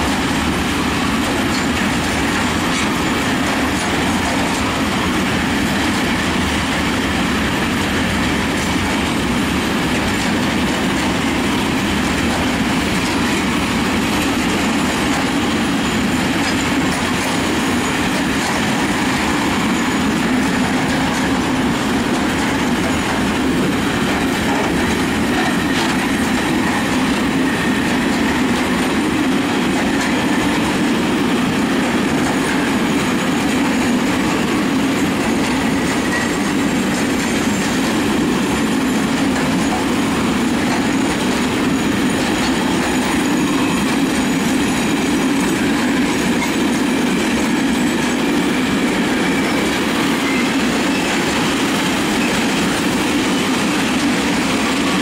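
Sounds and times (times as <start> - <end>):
freight train wheels rumbling: 0.0 - 55.0
faint high wheel squeal: 35.3 - 37.6, 39.5 - 44.8, 47.8 - 55.0.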